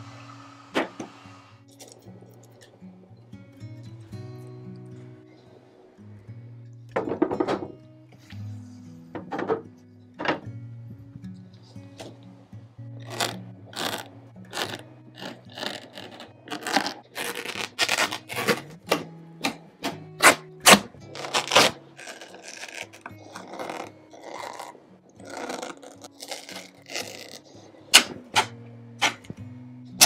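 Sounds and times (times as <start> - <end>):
fabric tearing and scraping: 13.0 - 19.0, 20.2 - 29.3.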